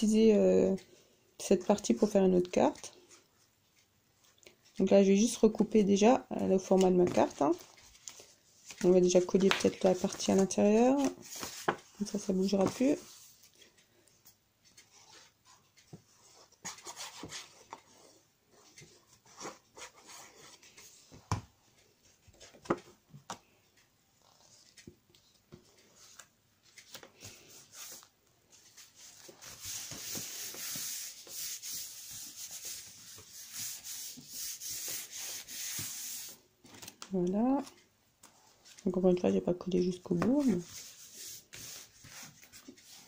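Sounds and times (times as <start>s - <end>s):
paper tapping and rustling: 6.8s - 12.9s
paper being rubbed: 29.2s - 36.4s.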